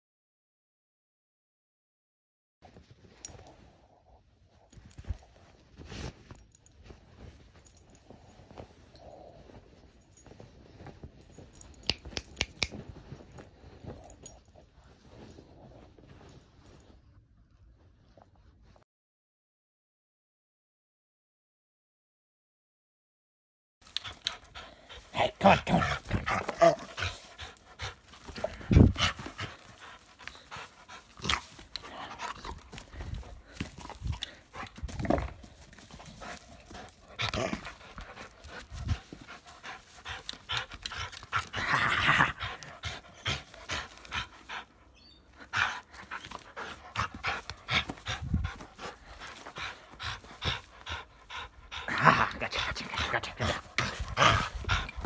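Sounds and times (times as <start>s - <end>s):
dog panting: 23.8s - 55.0s.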